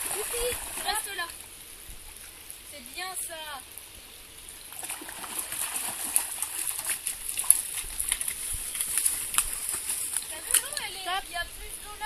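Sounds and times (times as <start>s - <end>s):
dog splashing through water: 0.0s - 1.1s, 4.7s - 10.8s.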